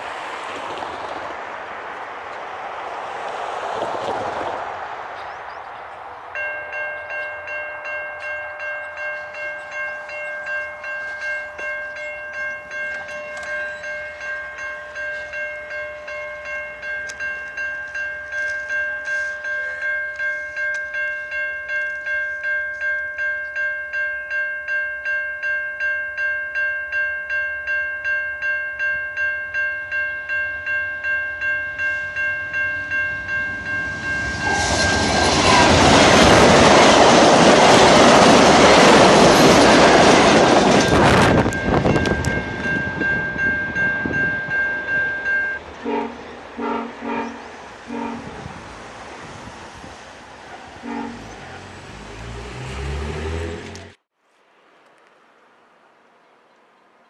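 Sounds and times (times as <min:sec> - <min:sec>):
level-crossing warning bell ringing: 0:06.3 - 0:48.4.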